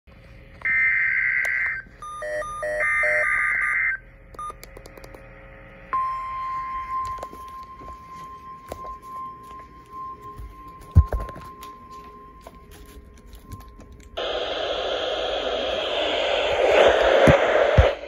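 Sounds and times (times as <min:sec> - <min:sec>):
steady warning alarm tone: 0:00.6 - 0:04.6, 0:05.9 - 0:14.7
receiver beeps: 0:00.7 - 0:04.6, 0:06.0 - 0:14.2.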